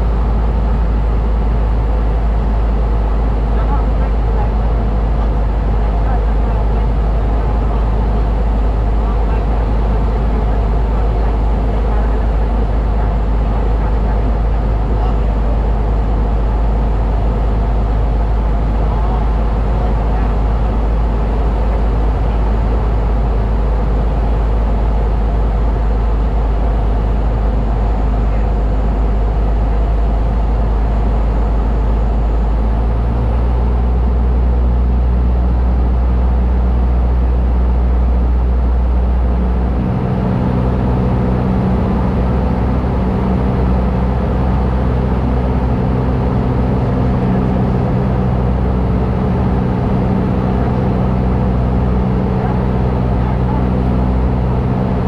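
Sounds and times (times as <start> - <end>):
light aircraft engine droning: 0.0 - 55.0.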